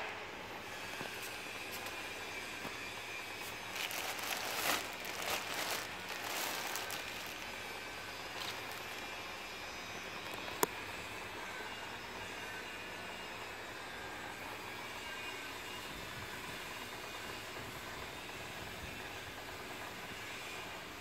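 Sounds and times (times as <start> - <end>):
faint steady whine: 0.0 - 21.0
crackly rustling: 3.4 - 9.2.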